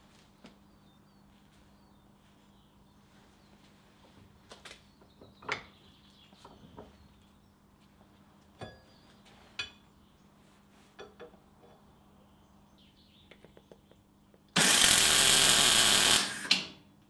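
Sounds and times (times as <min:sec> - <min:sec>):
welding arc crackling: 0:14.6 - 0:16.6.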